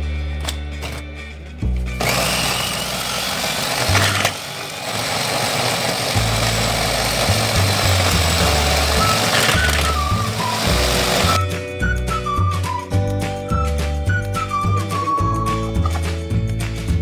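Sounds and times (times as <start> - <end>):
electric food chopper whirring: 2.0 - 11.4.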